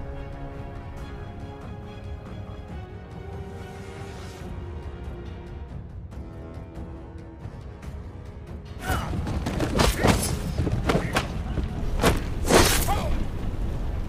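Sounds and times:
soft music: 0.0 - 9.1
clashing impacts and thuds: 9.0 - 13.0.

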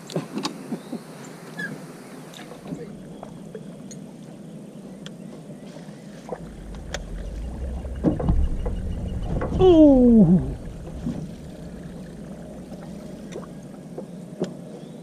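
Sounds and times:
low rumble: 2.6 - 3.8, 6.3 - 14.2.

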